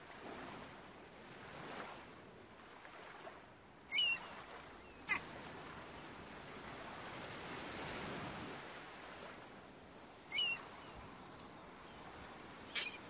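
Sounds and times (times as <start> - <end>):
surf washing: 0.0 - 13.0
bird calls: 3.9 - 5.2, 10.3 - 13.0.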